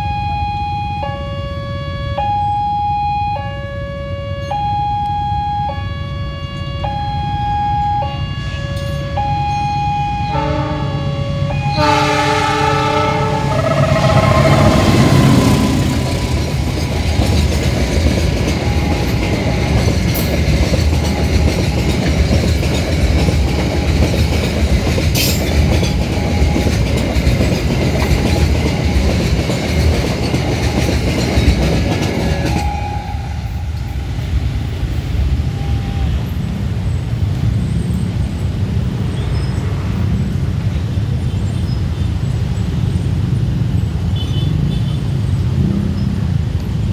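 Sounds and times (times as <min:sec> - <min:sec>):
train rumbling over crossing: 0:00.0 - 0:46.9
train horn: 0:08.0 - 0:16.7, 0:32.2 - 0:34.2.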